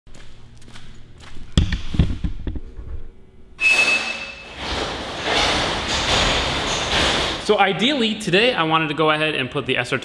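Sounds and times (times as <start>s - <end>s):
knocks and thuds: 4.5s - 7.4s.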